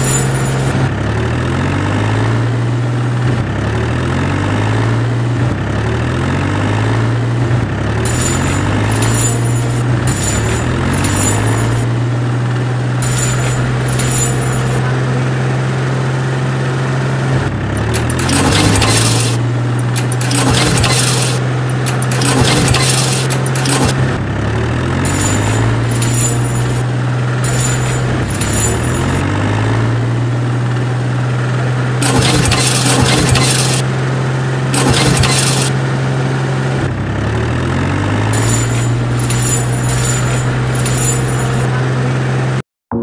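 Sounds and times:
clinking rattle: 0.0s - 0.8s, 8.0s - 12.0s, 13.0s - 14.9s, 17.7s - 24.0s, 25.0s - 29.4s, 32.0s - 33.8s, 34.7s - 35.8s, 38.3s - 41.8s
tractor engine revving: 0.0s - 43.0s.

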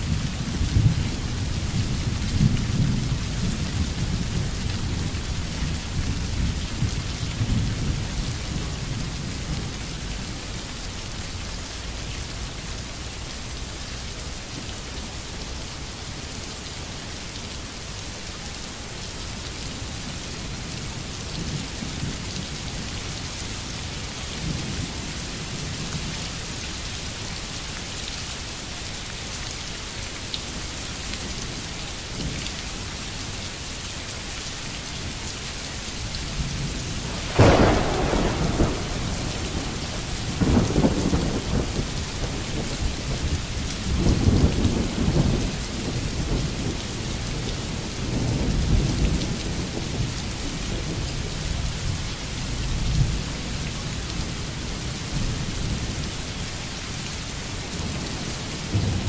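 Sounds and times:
steady rain falling: 0.0s - 59.0s
rolling thunder rumbles: 36.4s - 50.1s, 57.7s - 59.0s
sharp thunderclap: 37.0s - 43.3s.

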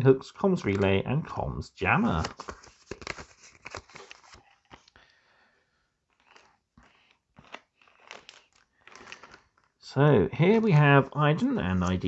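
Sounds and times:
paper leaflet rustling: 0.5s - 1.0s, 1.8s - 5.1s, 6.1s - 9.8s, 10.4s - 12.0s.

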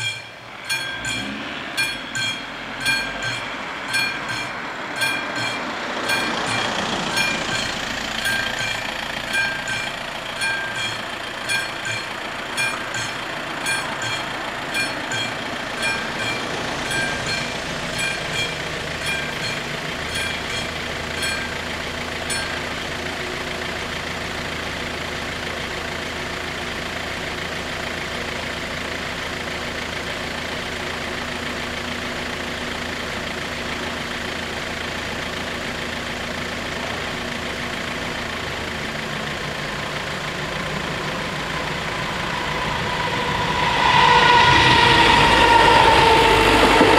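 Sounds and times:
level crossing bell ringing: 0.0s - 23.0s
van engine idling: 0.0s - 46.9s.

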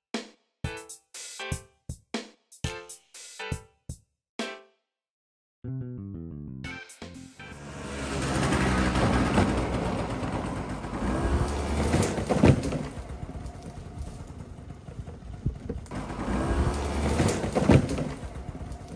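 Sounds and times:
scooter engine revving: 7.5s - 18.9s
scooter crashing into grass: 11.0s - 14.1s, 15.9s - 18.9s.

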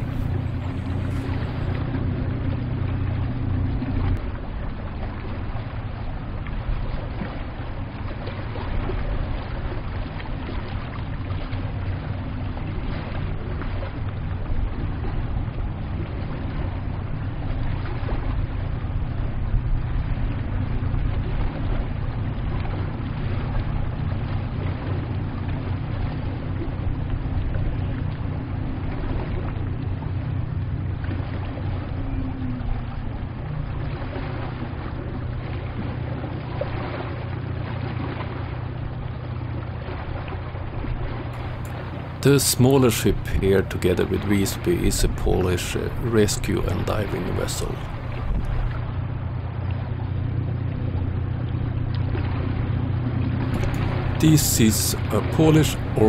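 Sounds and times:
water washing: 0.0s - 1.8s, 41.4s - 48.8s, 53.5s - 56.0s
boat engine running: 0.0s - 56.0s.

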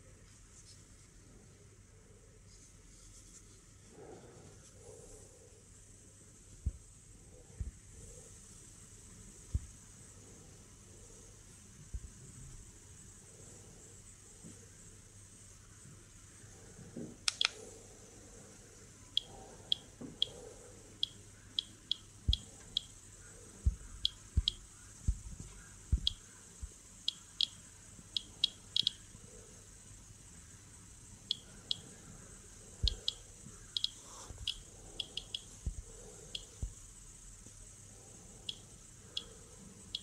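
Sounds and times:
geiger counter clicking: 17.3s - 17.6s, 19.2s - 20.4s, 21.0s - 23.0s, 23.8s - 24.7s, 26.0s - 26.2s, 27.1s - 29.0s, 31.3s - 31.9s, 32.8s - 35.6s, 36.3s - 36.6s.

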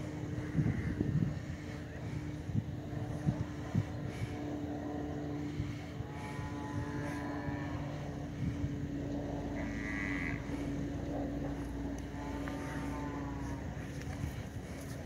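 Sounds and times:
distant cattle calls: 0.0s - 15.0s
steady low hum: 0.0s - 15.0s
wind on microphone: 0.0s - 15.0s.

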